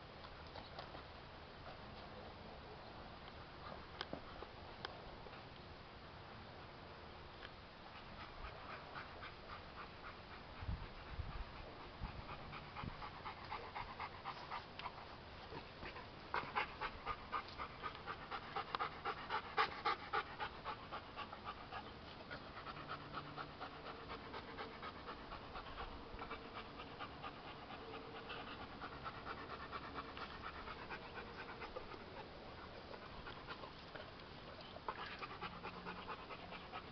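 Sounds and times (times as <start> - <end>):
dog panting: 7.9 - 36.9.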